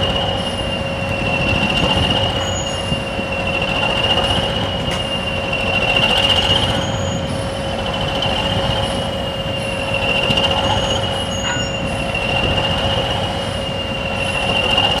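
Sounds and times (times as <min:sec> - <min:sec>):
diesel locomotive engines rumbling: 0:00.0 - 0:15.0
high-pitched whistle: 0:09.6 - 0:12.2.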